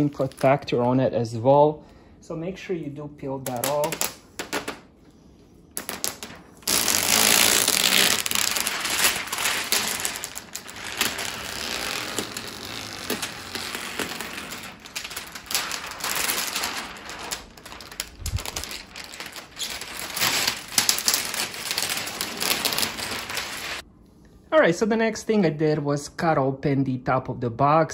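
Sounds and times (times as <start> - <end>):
plastic film peeling off screen: 0.0 - 0.8, 5.9 - 23.8.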